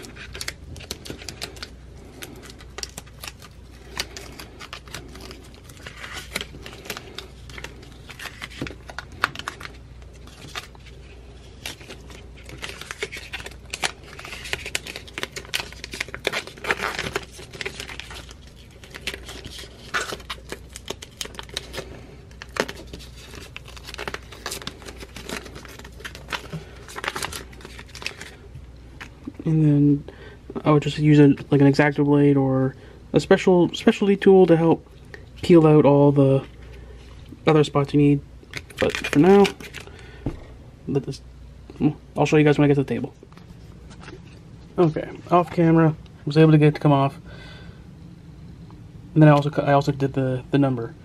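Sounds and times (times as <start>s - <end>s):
vinyl film peeling and crinkling: 0.0s - 29.5s, 35.4s - 39.9s.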